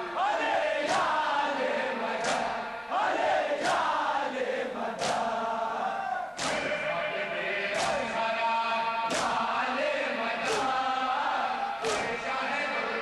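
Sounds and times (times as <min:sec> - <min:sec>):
men chanting together: 0:00.0 - 0:13.0
hands slapping chests: 0:00.9 - 0:01.2, 0:02.2 - 0:02.6, 0:03.6 - 0:04.0, 0:05.0 - 0:05.4, 0:06.4 - 0:06.7, 0:07.8 - 0:08.1, 0:09.1 - 0:09.5, 0:10.4 - 0:10.8, 0:11.8 - 0:12.2.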